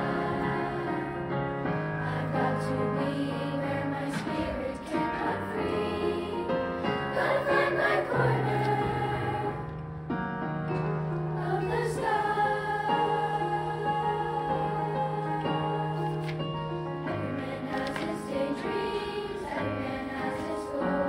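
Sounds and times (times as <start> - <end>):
children's choir singing: 0.0 - 9.8, 11.3 - 21.0.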